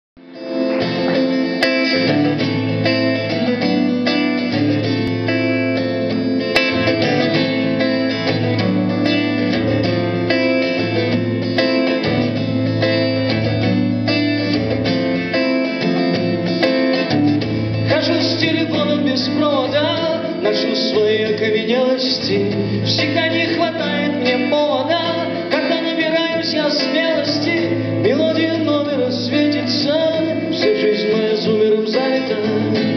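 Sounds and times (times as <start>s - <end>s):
strummed acoustic guitar: 0.2s - 32.9s
man singing: 17.8s - 32.9s.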